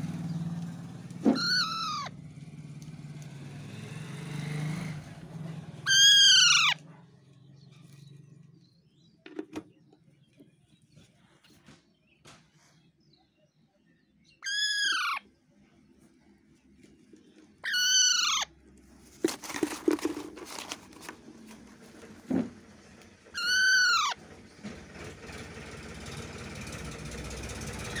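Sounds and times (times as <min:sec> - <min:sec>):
parakeet calling: 0:01.3 - 0:02.2, 0:05.8 - 0:06.8, 0:14.4 - 0:15.3, 0:17.6 - 0:18.5, 0:23.4 - 0:24.2
rustles and clicks: 0:18.7 - 0:23.6
thump: 0:22.3 - 0:22.6.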